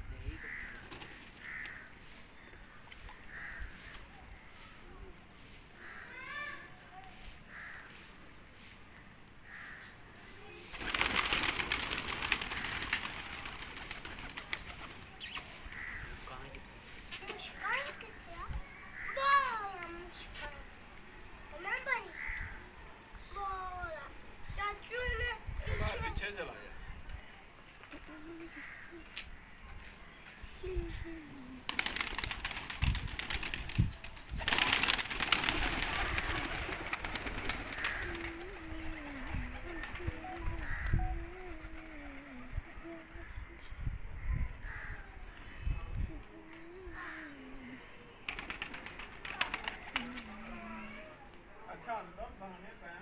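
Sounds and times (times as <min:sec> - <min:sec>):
pigeons flapping wings: 0:00.6 - 0:01.8, 0:10.7 - 0:15.4, 0:31.6 - 0:42.5, 0:48.3 - 0:50.4
pigeon cooing: 0:36.0 - 0:43.6.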